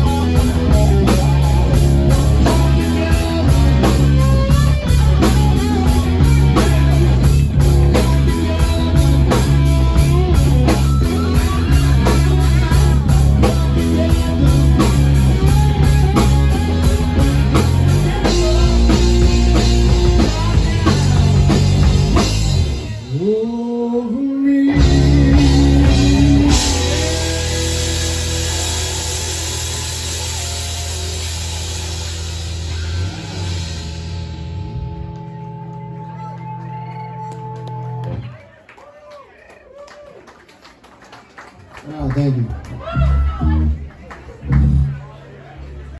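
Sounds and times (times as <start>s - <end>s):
man singing: 0.0s - 4.7s, 11.6s - 28.1s
live rock band playing: 0.0s - 38.4s, 42.7s - 45.2s.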